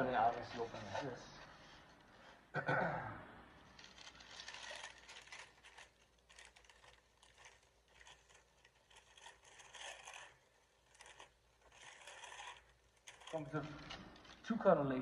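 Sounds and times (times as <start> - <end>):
tissue paper and plastic bag rustling: 3.7 - 14.6.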